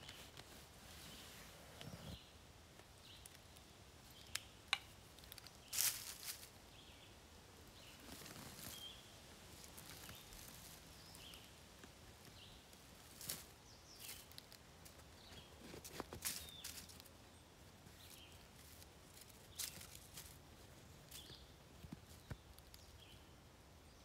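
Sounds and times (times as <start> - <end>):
dry leaves rustling: 4.0 - 23.2.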